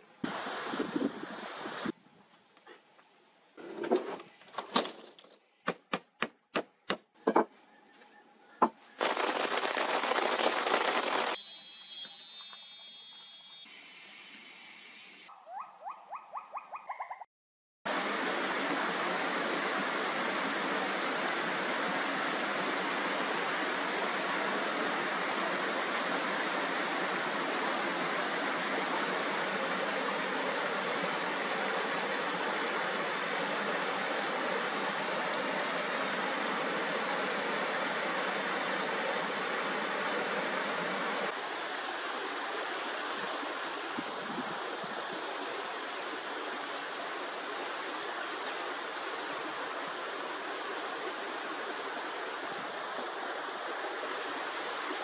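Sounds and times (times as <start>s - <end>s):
noise burst: 0.0s - 2.0s, 9.0s - 15.2s, 17.9s - 55.0s
stream pouring over rock ledge: 17.9s - 43.9s.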